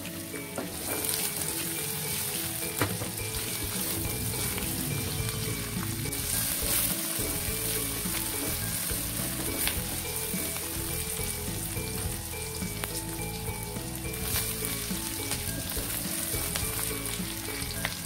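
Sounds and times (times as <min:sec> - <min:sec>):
onions sizzling in hot oil: 0:00.0 - 0:18.0.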